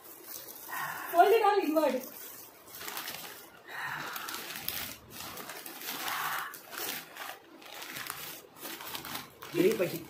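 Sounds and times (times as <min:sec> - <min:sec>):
man breathing hard through mouth: 0:03.6 - 0:05.0, 0:05.9 - 0:06.7.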